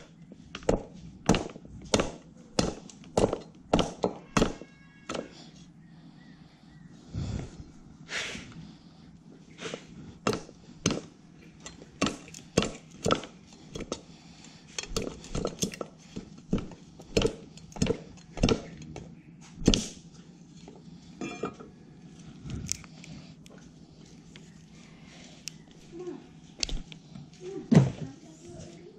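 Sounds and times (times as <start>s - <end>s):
machete chopping on wooden block: 0.6s - 5.3s, 10.3s - 11.1s, 12.0s - 14.0s, 14.9s - 18.8s.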